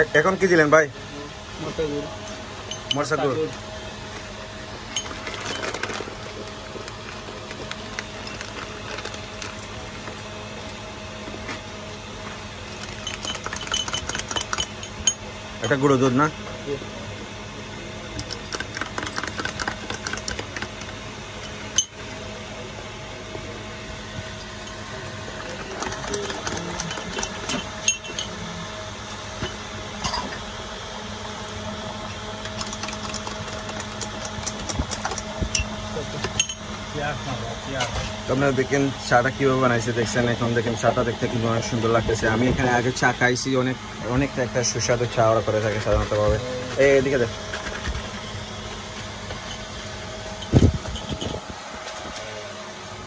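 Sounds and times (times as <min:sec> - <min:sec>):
steady low hum: 0:00.0 - 0:53.0
spoon clinking against glass: 0:12.9 - 0:15.2, 0:25.8 - 0:28.4.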